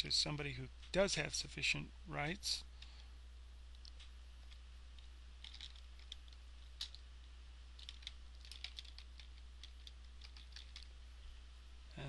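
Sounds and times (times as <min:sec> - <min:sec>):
steady low hum: 0:00.0 - 0:12.0
keyboard typing: 0:05.4 - 0:07.0, 0:07.8 - 0:10.9.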